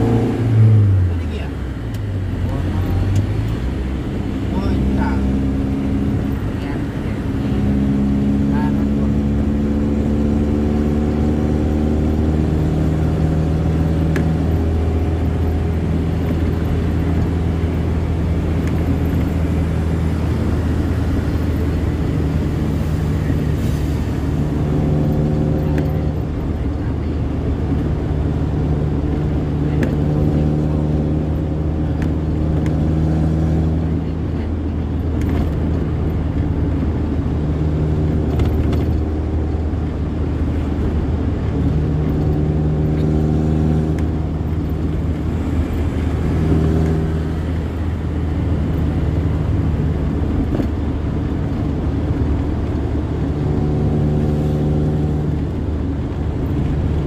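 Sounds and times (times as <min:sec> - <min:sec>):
low rumble of travel: 0:00.0 - 0:57.0
vehicle engine running: 0:00.0 - 0:57.0.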